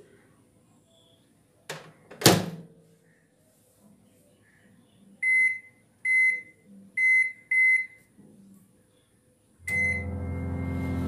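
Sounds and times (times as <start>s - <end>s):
microwave keypad beeps: 5.2s - 8.0s, 9.7s - 10.5s
microwave oven humming: 9.7s - 11.0s.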